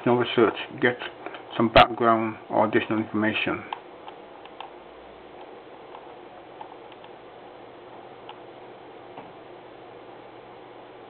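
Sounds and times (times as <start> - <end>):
background hiss and hum: 0.0 - 11.0
computer mouse clicks: 3.7 - 4.8, 5.4 - 7.2.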